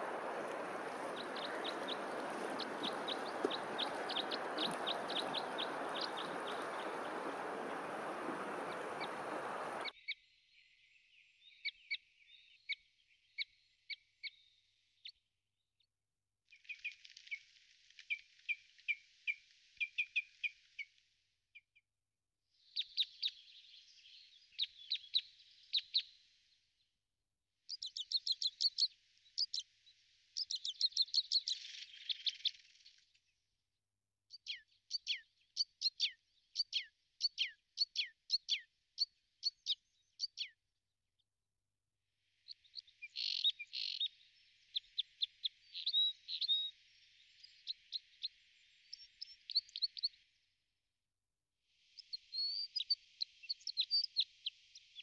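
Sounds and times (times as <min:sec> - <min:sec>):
songbirds chirping trills: 0:00.0 - 0:10.0.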